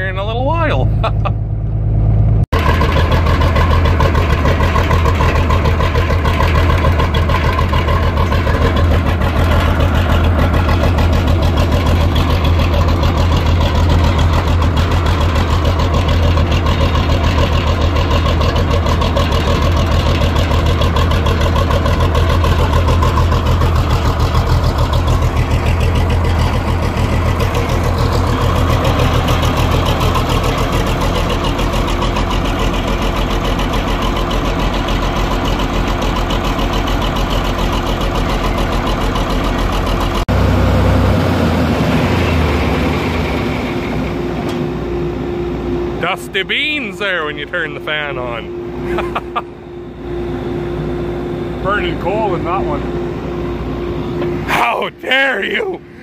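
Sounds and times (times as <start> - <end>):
tractor engine running: 0.0 - 56.0
faint steady whine: 43.2 - 56.0.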